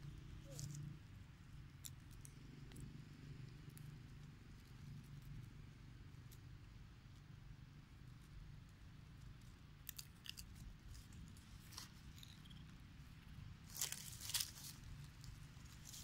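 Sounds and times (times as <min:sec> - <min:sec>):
low steady rumble: 0:00.0 - 0:16.0
dry leaf litter crackling: 0:13.6 - 0:16.0.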